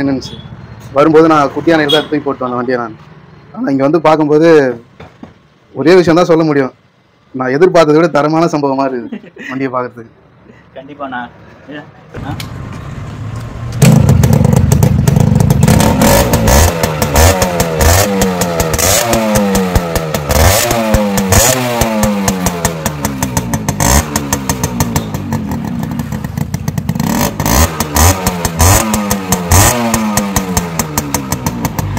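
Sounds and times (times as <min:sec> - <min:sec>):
motorcycle engine revving: 0:12.6 - 0:31.9
exhaust pops: 0:13.4 - 0:31.9.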